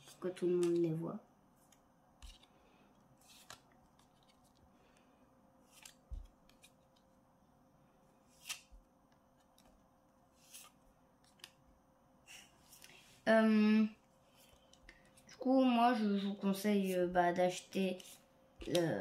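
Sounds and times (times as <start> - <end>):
cards sliding papery swish: 3.2 - 4.5, 8.3 - 8.8, 10.3 - 10.8.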